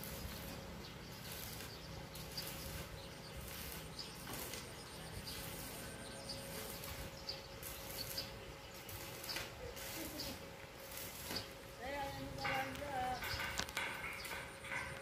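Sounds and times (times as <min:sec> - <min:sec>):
small bird chirping: 0:00.1 - 0:10.4.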